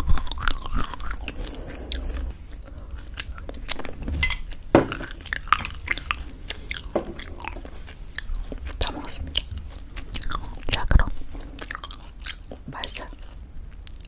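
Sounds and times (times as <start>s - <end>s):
chewing with crunches: 0.0s - 14.0s.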